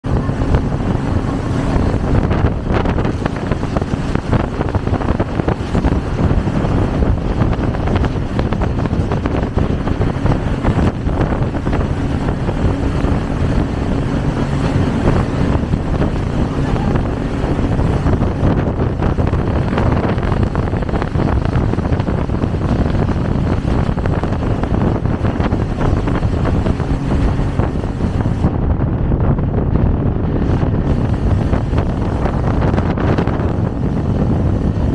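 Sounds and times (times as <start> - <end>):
rushing water: 0.0 - 34.9
speedboat engine drone: 0.0 - 34.9
wind buffeting microphone: 0.0 - 34.9.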